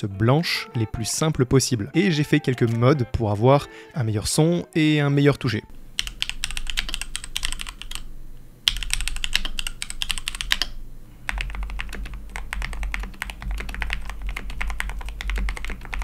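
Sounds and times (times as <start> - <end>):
fast typing on mechanical keyboard: 6.0 - 8.1, 8.7 - 16.0.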